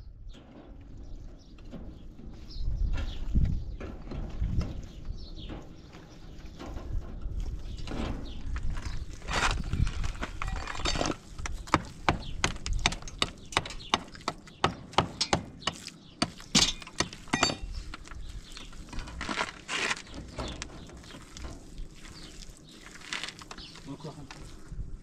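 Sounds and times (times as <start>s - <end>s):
short scraping noises: 7.9s - 11.2s, 19.0s - 20.6s
knocks and clacks of hard objects: 10.1s - 17.8s.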